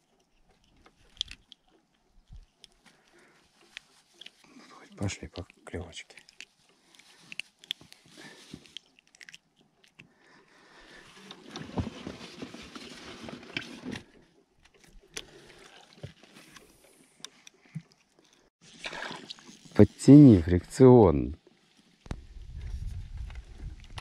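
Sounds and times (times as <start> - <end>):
clothing and gear rustling: 0.0 - 5.1, 10.8 - 18.5.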